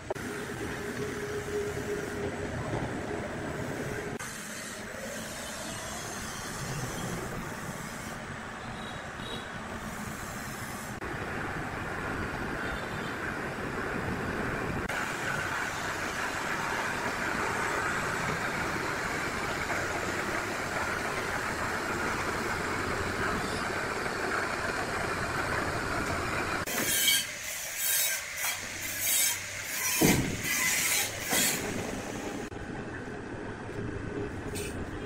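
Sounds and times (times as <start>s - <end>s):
sawmill machinery grinding: 14.9s - 32.5s.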